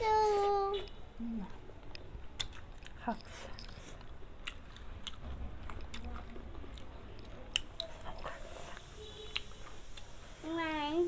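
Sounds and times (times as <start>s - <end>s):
chewing with mouth clicks: 1.9s - 10.1s.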